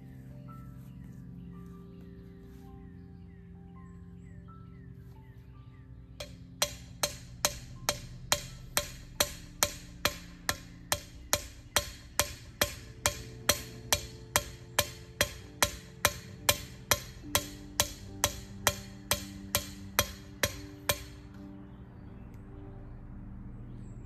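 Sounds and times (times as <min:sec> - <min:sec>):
hammer striking ground anchor: 0:06.2 - 0:21.4.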